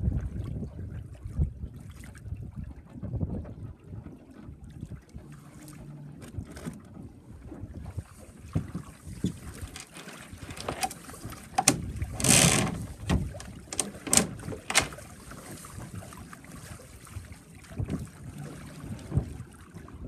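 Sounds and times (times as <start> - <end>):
water slapping against boat hull: 0.0 - 20.0
wind rumbling on microphone: 0.0 - 20.0
water splash: 8.0 - 20.0.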